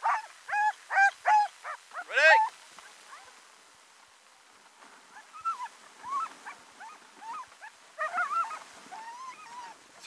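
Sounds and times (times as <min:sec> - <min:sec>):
dogs whining: 0:05.4 - 0:09.8.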